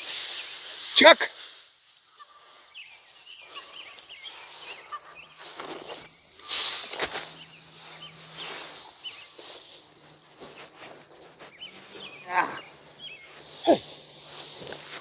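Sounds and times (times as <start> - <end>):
small birds chirping: 1.8 - 15.0
brush rustling against phone: 4.3 - 15.0.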